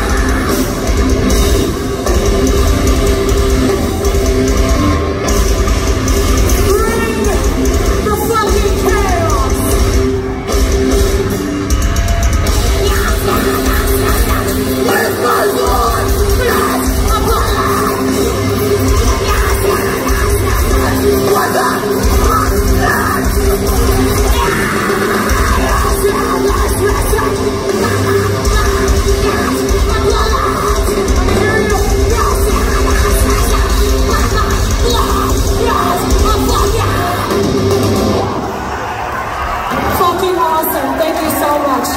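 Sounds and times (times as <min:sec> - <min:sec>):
metalcore band playing live: 0:00.0 - 0:41.9
screamed vocals: 0:12.6 - 0:41.9.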